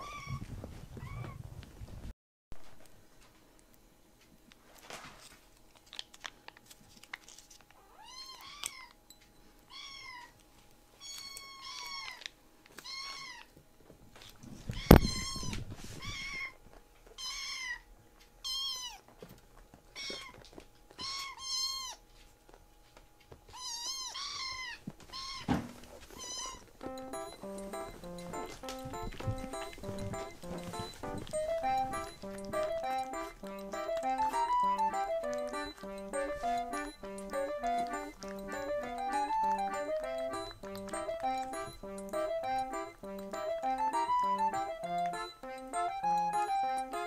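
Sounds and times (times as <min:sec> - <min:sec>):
kitten meowing: 0:23.5 - 0:25.5, 0:26.2 - 0:26.6.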